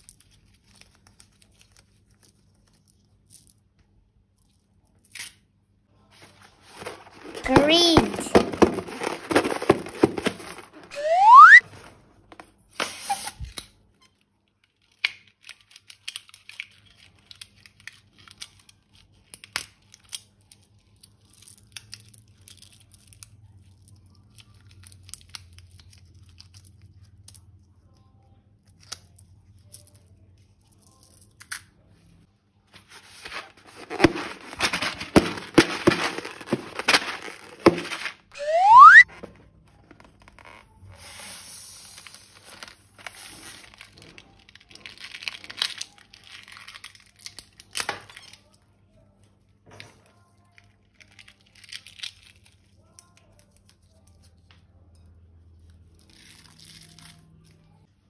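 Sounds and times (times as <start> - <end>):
rising whistle sound effect: 10.9 - 11.6, 38.4 - 39.0.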